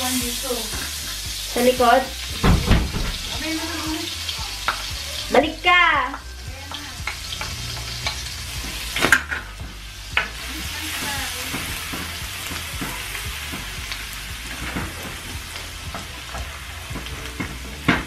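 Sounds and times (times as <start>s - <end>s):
food sizzling in oil: 0.0s - 18.0s.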